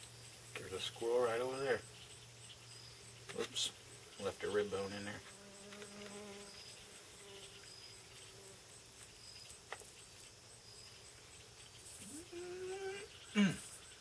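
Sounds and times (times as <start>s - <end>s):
faint insects chirping: 0.0s - 14.0s.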